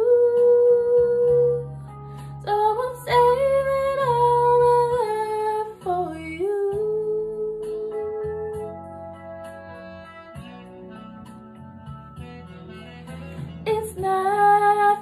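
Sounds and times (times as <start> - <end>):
soft guitar backing: 2.4 - 15.0
woman singing wordless notes: 13.6 - 15.0.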